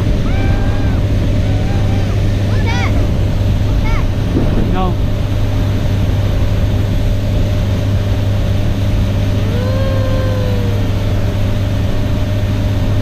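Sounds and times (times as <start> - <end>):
outboard motor droning: 0.0 - 13.0
child calling out: 0.2 - 3.0, 3.8 - 4.1, 9.4 - 11.4.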